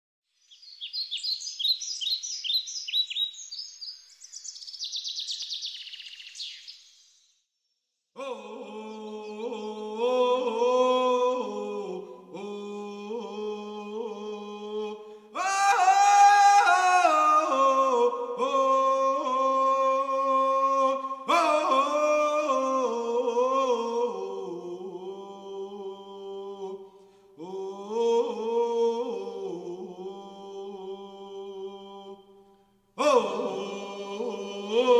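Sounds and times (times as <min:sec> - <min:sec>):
high bird-like chirping: 0:00.3 - 0:07.8
chant in long held notes: 0:08.2 - 0:34.9.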